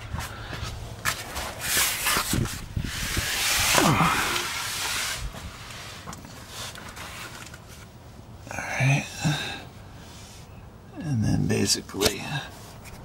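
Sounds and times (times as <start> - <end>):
rustling and scraping on cardboard: 0.2 - 7.9.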